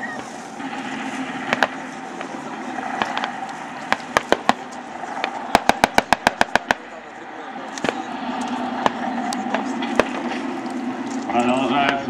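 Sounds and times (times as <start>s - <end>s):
background hum: 0.0s - 12.0s
distant gunshots: 0.2s - 7.0s, 8.8s - 10.5s.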